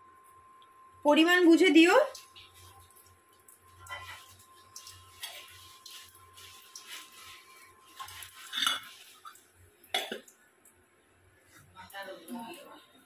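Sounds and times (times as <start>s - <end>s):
metal kitchen utensils clinking: 8.0s - 9.4s.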